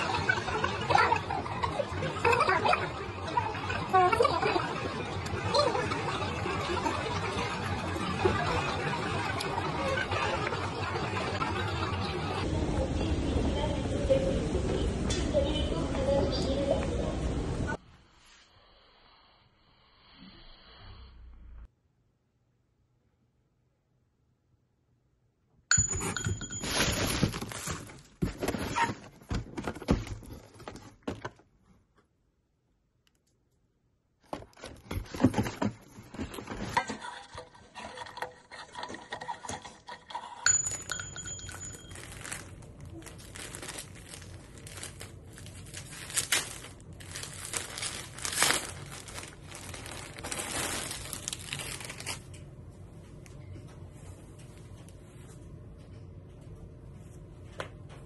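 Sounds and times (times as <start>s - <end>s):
objects rustling and crinkling: 25.9s - 31.8s, 34.2s - 37.3s, 40.5s - 56.0s
low steady hum: 35.2s - 58.0s
small clinking: 40.5s - 42.5s.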